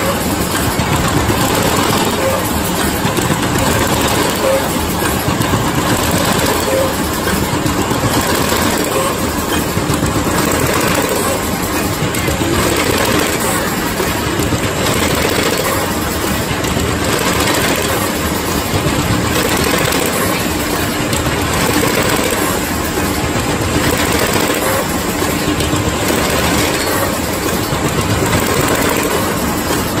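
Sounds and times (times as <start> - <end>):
machine clattering: 0.0 - 30.0.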